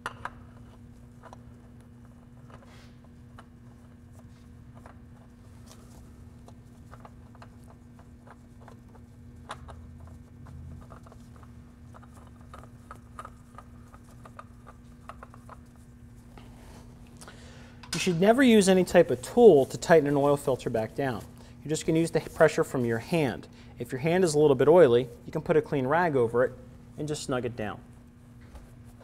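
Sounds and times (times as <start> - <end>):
oil filter clicks and scraping: 0.0 - 16.2
steady low hum: 0.0 - 29.0.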